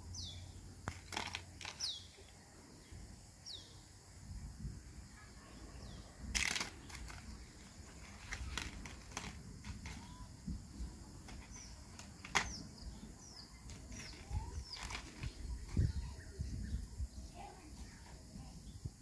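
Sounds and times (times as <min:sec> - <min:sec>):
small bird chirping: 0:00.0 - 0:03.9, 0:09.8 - 0:19.0.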